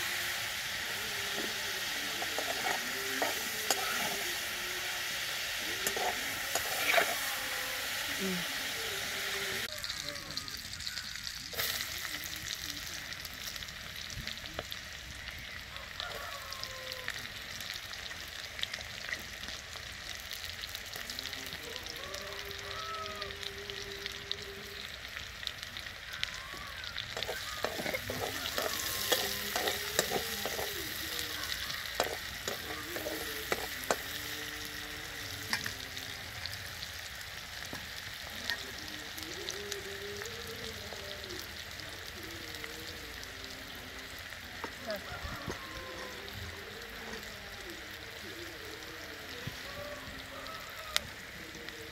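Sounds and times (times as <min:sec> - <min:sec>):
onions sizzling in hot oil: 0:00.0 - 0:51.9
metal spatula scraping pan: 0:05.8 - 0:07.3, 0:27.2 - 0:30.8.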